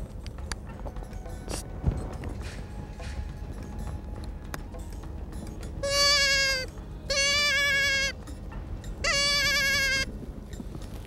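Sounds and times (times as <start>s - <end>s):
game call distress cries: 5.8s - 8.2s, 9.0s - 10.1s.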